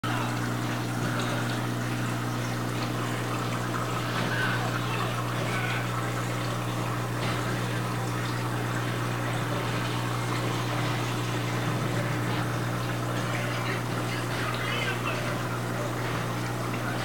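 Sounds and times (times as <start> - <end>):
low pump hum: 0.0 - 17.0
water trickling: 0.1 - 17.0.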